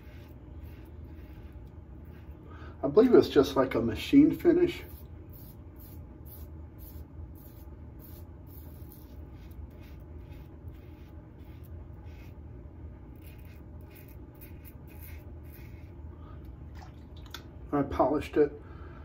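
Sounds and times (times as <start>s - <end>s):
razor scraping stubble: 0.0s - 2.5s, 4.8s - 12.4s, 13.1s - 16.0s
steady low hum: 0.0s - 19.0s.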